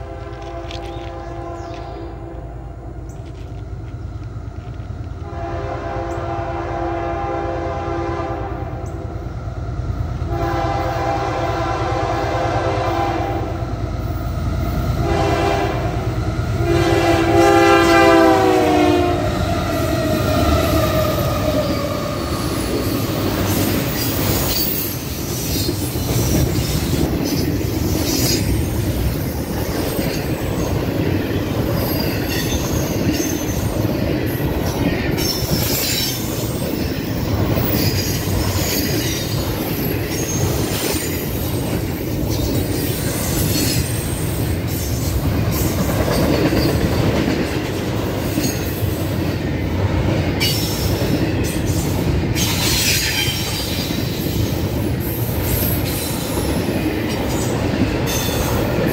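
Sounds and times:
train air horn blasts: 0.0 - 2.6, 5.2 - 8.8, 10.3 - 13.6, 15.0 - 21.9
locomotive engine rumble: 0.0 - 42.8
train wheels clacking on rails: 12.8 - 58.9.

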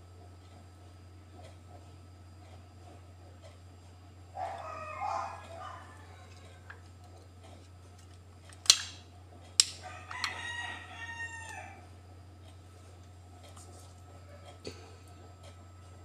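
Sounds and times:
rooster crowing: 4.4 - 6.8, 9.8 - 11.9.

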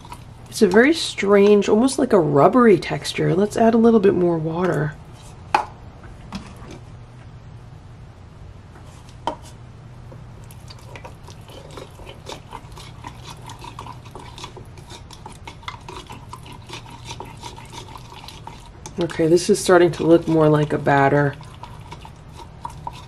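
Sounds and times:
spatula clicking and scraping bowl: 0.0 - 1.9, 10.5 - 23.0
spatula mashing thick paste: 0.0 - 2.0, 10.5 - 23.0.

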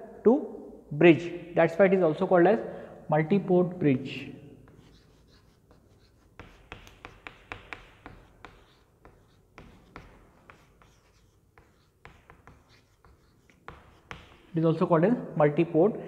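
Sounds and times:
chalk tapping and scratching: 4.6 - 14.7.

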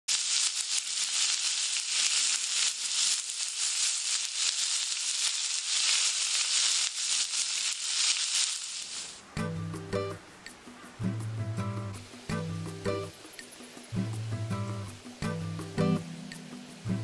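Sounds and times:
fat popping and crackling: 0.1 - 9.2
steak sizzling in a skillet: 0.1 - 9.2.

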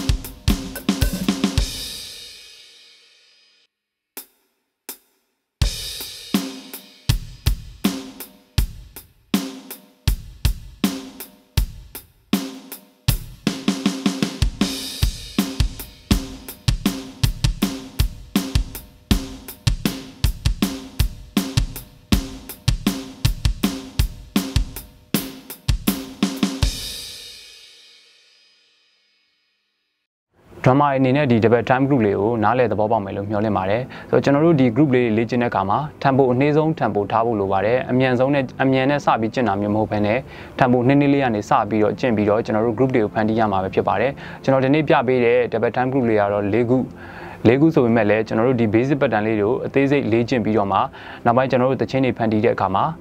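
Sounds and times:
electronic drum kit rock groove: 0.0 - 2.5, 5.6 - 27.5.

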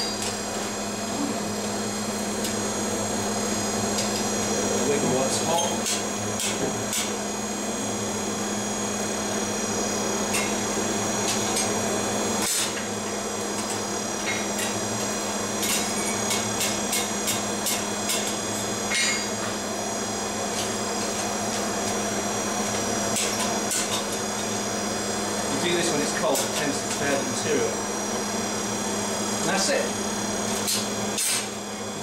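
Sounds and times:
mechanical hum: 0.0 - 32.0.

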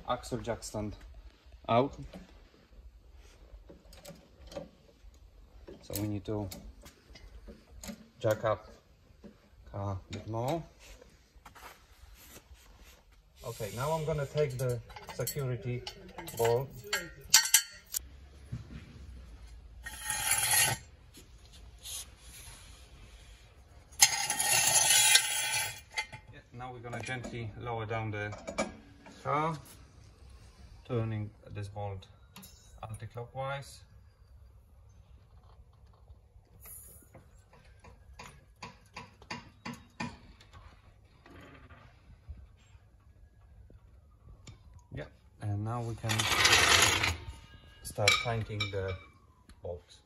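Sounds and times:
jack stand scraping on concrete: 19.8 - 20.9, 24.0 - 26.1, 46.0 - 47.3.

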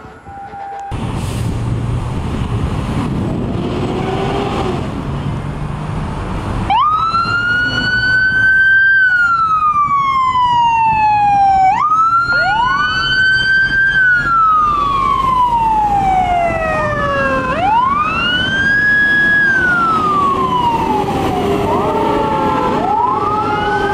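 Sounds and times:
second rising siren: 0.0 - 1.0, 6.7 - 23.9
wailing siren: 0.0 - 1.0, 6.7 - 23.9
fire engine running: 0.0 - 23.9.

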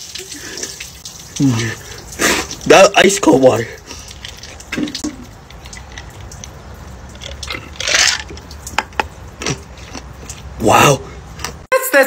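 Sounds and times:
man gulping water: 0.2 - 2.7, 3.8 - 11.6
hissing burst of breath: 1.4 - 2.6.

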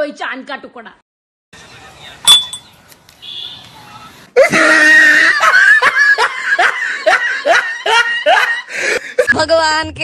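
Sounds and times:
spoon clinking glass: 2.3 - 2.7.

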